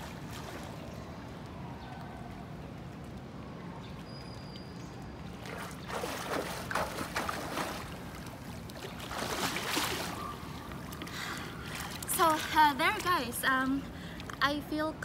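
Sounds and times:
swimmer splashing in pool: 0:08.8 - 0:10.7.

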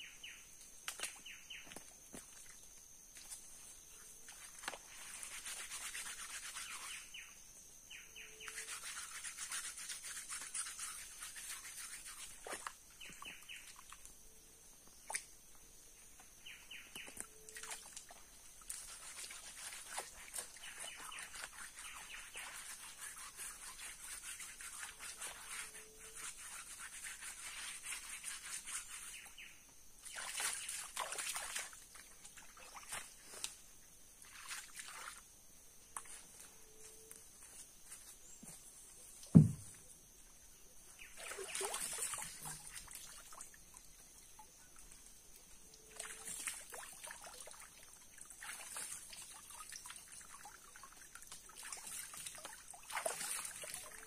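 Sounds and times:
water splashing and sloshing: 0:17.0 - 0:22.4, 0:30.0 - 0:36.2, 0:41.0 - 0:54.0.

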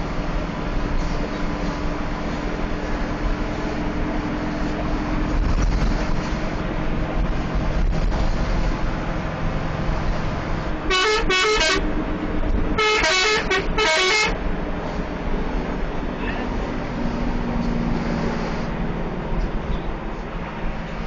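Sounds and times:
bus engine and road noise: 0:00.0 - 0:21.0
melodic bus horn blasts: 0:10.8 - 0:11.9, 0:12.7 - 0:14.4.

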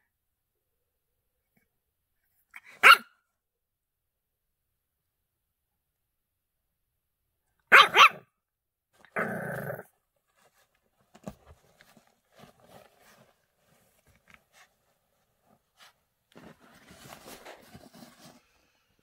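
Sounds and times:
puppy barking: 0:02.6 - 0:03.2, 0:07.7 - 0:08.3
puppy growling: 0:09.0 - 0:09.9.

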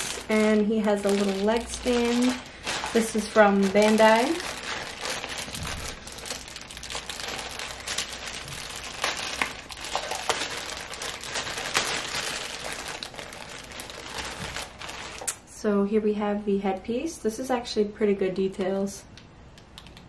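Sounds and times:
plastic bag crinkling: 0:00.0 - 0:15.4.

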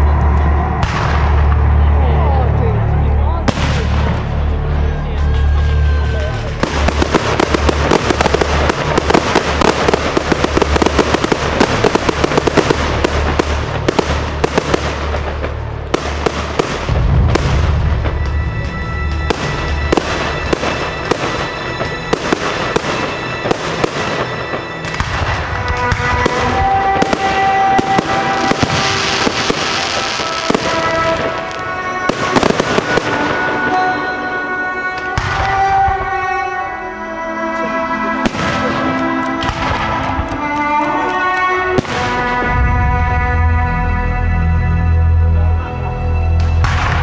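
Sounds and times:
fireworks bursting and crackling: 0:00.0 - 0:01.9, 0:03.4 - 0:36.5, 0:37.5 - 0:43.2
low rumble: 0:00.0 - 0:21.5
music: 0:00.0 - 0:47.0.

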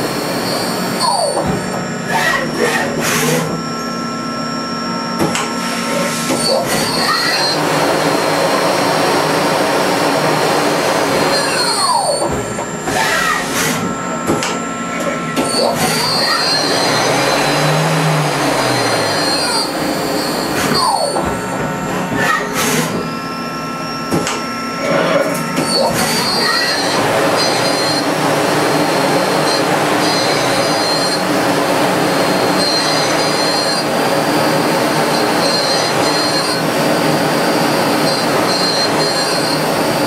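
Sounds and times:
lathe spindle whine: 0:00.0 - 0:40.0
machine hum: 0:00.0 - 0:40.0.

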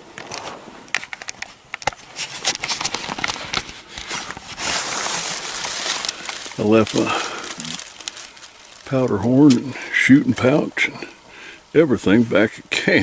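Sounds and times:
rushing noise on microphone: 0:00.0 - 0:09.7
camera handling rustles and clicks: 0:00.1 - 0:08.6.

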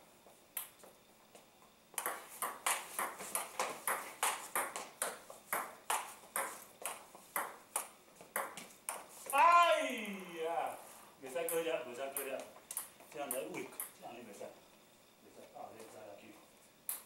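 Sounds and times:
table tennis ball hitting paddles: 0:01.9 - 0:09.1
ball bouncing on table: 0:02.0 - 0:09.0.

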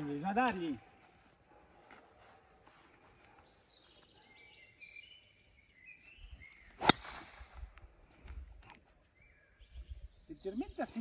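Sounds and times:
birds chirping: 0:00.0 - 0:11.0
golf club striking ball: 0:06.8 - 0:07.6.

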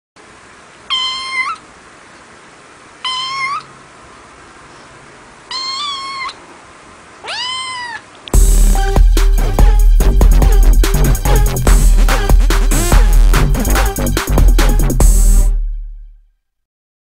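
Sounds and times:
kitten meowing: 0:00.9 - 0:01.6, 0:03.0 - 0:03.7, 0:05.5 - 0:06.4, 0:07.2 - 0:08.1.

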